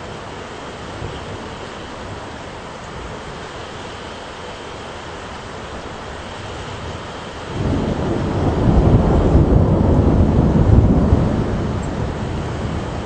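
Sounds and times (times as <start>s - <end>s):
rushing storm: 0.0s - 13.0s
thunder rumbling: 7.5s - 13.0s.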